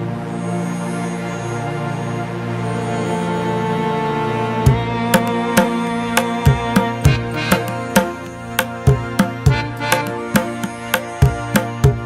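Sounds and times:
soft sustained music chords: 0.0s - 12.0s
percussion stroke: 4.7s - 12.0s.

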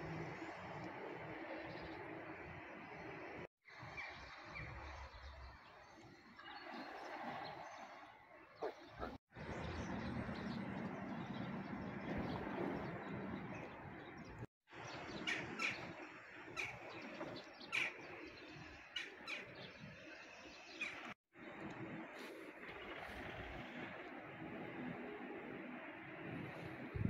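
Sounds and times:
distant city hum: 0.0s - 5.4s, 8.6s - 20.2s, 20.8s - 27.0s
small birds chirping: 1.3s - 21.2s.

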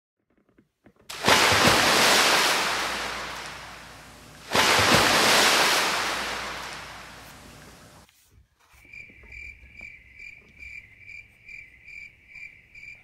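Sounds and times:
ocean waves breaking: 1.1s - 8.0s.

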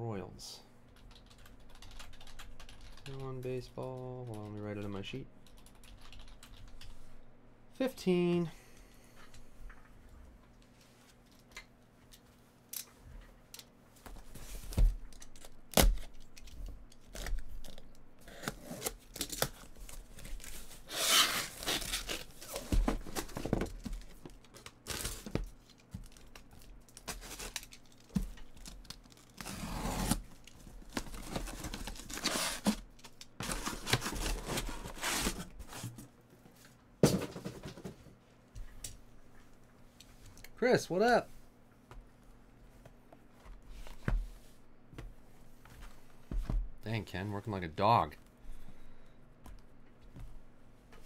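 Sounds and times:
packing tape and cardboard ripping: 15.2s - 23.4s, 24.5s - 30.3s, 30.9s - 35.5s.

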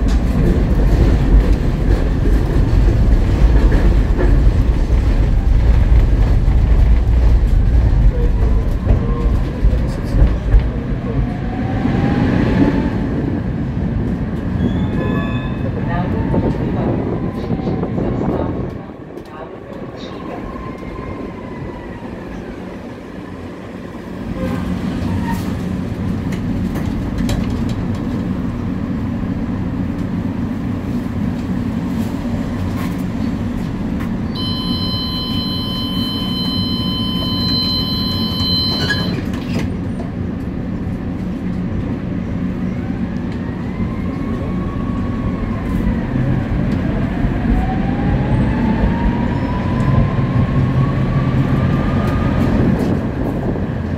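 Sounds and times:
tram wheels rumbling on rails: 0.0s - 53.9s
tram motor whine: 33.8s - 53.9s
high whistling tone: 34.4s - 39.2s.

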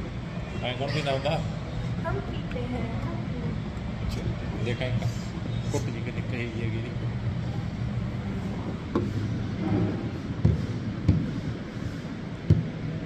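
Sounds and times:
steady low hum: 0.0s - 13.0s
dull thumps: 10.4s - 11.4s.

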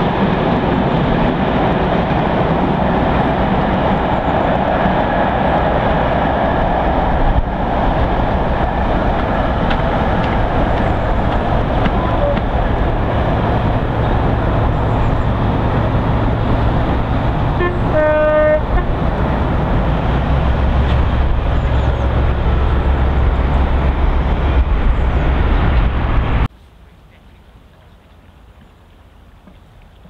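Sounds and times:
diesel locomotive drone: 0.0s - 29.8s
steam whistle toot: 17.6s - 18.9s.

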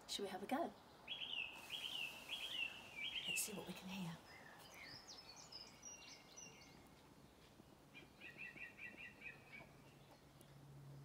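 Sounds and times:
faint birdsong: 0.1s - 11.0s.

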